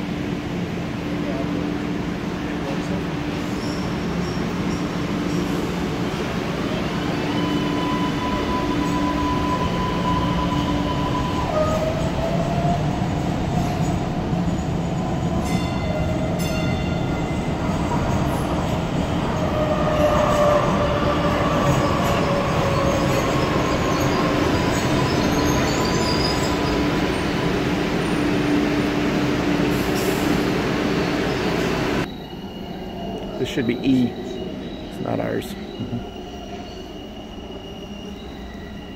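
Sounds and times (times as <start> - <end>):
subway train rumble: 0.0 - 38.9
wheels squealing: 19.1 - 28.3.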